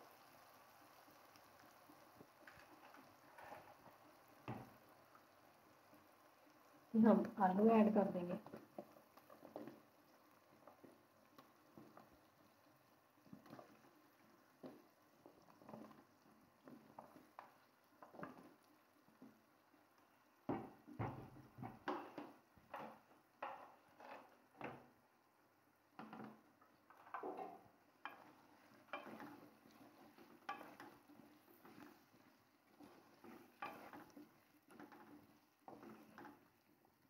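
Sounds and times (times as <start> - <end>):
spoon knocking and scraping pot: 4.4 - 4.8, 8.0 - 9.8, 14.6 - 19.4, 20.4 - 24.8, 26.0 - 36.6.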